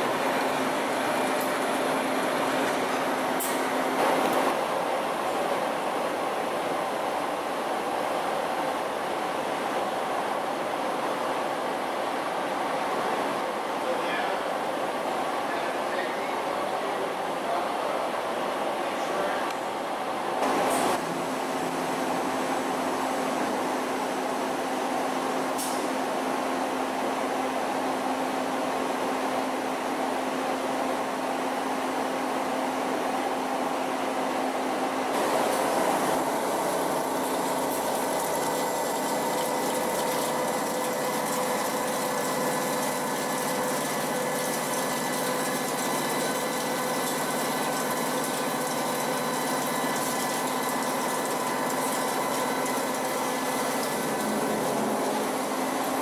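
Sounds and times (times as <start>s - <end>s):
machine spindle humming and whining: 0.0s - 56.0s.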